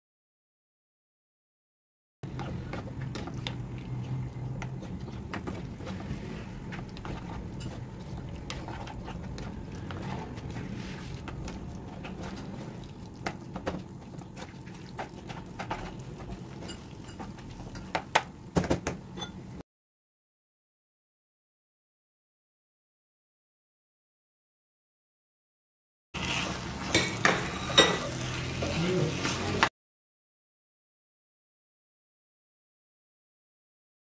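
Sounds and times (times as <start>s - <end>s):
spatula scraping frying pan: 2.3s - 13.0s, 14.2s - 18.0s, 26.2s - 29.6s.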